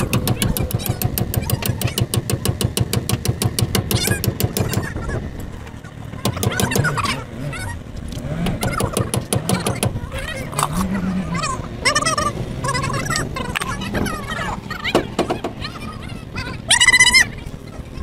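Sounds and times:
fast metal tapping: 0:00.0 - 0:05.0, 0:06.2 - 0:07.0, 0:08.4 - 0:10.0
short wavering calls: 0:08.6 - 0:18.0.

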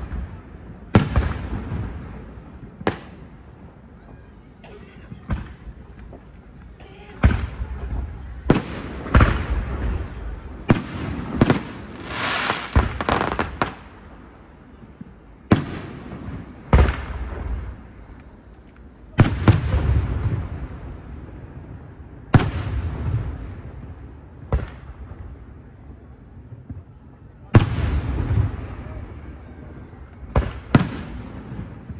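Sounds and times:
firework shells booming: 0:00.0 - 0:04.0, 0:07.2 - 0:13.9, 0:15.0 - 0:18.0, 0:19.2 - 0:25.9, 0:27.6 - 0:29.1, 0:29.8 - 0:31.9
firework crackling: 0:00.0 - 0:04.1, 0:05.3 - 0:31.9.

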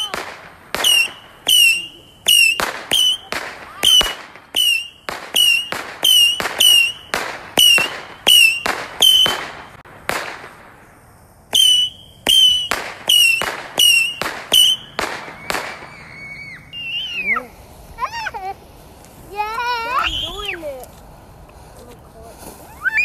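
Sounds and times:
firework whistle: 0:00.0 - 0:10.6, 0:11.5 - 0:18.3, 0:19.7 - 0:20.7, 0:22.6 - 0:23.0
firework bangs: 0:00.0 - 0:21.7.

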